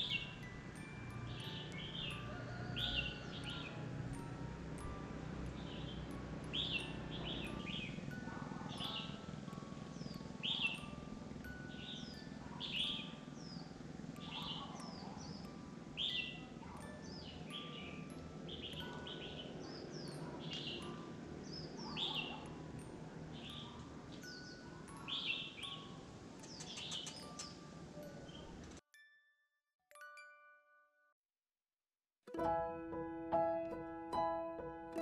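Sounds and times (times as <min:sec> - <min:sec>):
birds chirping: 0:00.0 - 0:28.8.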